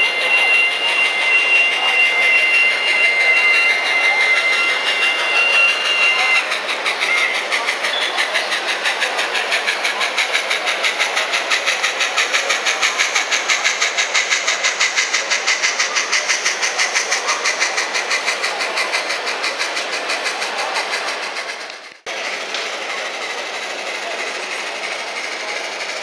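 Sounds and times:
two-tone whistle: 0:00.0 - 0:08.2
model locomotive steam chuffs: 0:00.0 - 0:26.0.

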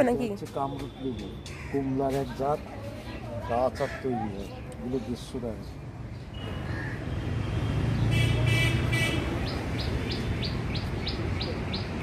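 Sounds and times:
passing vehicle rumble: 0:05.9 - 0:12.0
bird trilling and chirping: 0:09.4 - 0:12.0.

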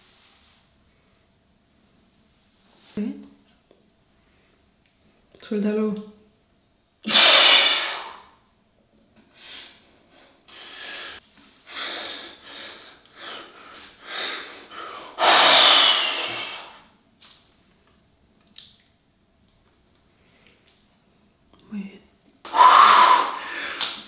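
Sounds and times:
man exhaling forcefully: 0:07.1 - 0:08.3, 0:14.1 - 0:16.8, 0:22.5 - 0:24.0
man breathing hard: 0:09.4 - 0:16.8, 0:22.5 - 0:24.0.

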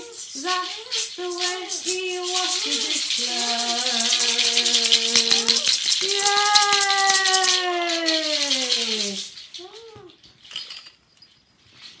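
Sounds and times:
hand rattle shaken: 0:00.0 - 0:12.0.

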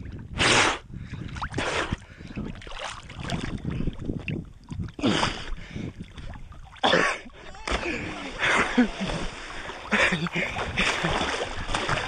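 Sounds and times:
water lapping and splashing: 0:01.1 - 0:12.0.

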